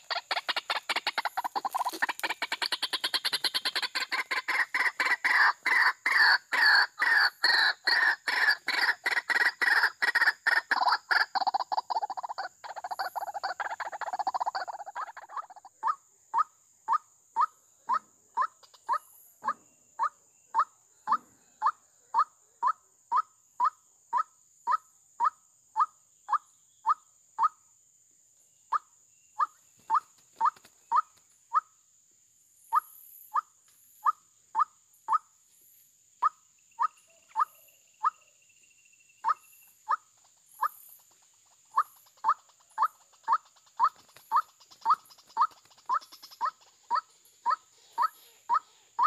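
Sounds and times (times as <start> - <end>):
faint high chirps: 10.7 - 27.7, 32.4 - 49.0.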